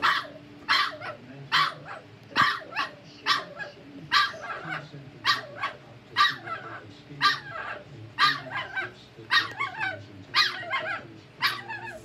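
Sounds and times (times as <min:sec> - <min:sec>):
puppy yelping: 0:00.0 - 0:12.0.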